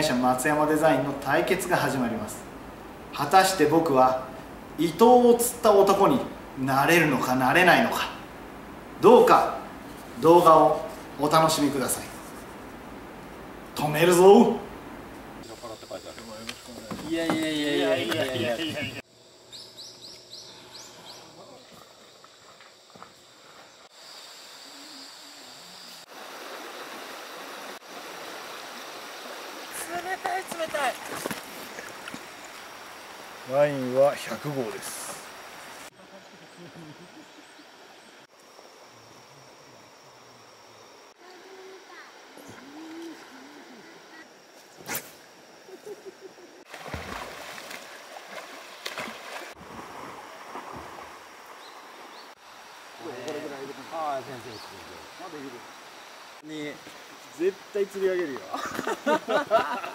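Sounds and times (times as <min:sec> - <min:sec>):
swimmer splashing: 0:25.9 - 0:36.0, 0:46.6 - 0:52.4
river water rushing: 0:26.0 - 0:36.0, 0:46.6 - 0:58.3.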